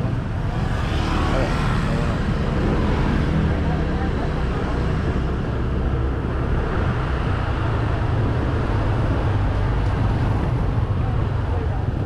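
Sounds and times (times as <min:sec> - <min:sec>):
road noise: 0:00.0 - 0:12.0
wind on microphone: 0:04.4 - 0:12.0.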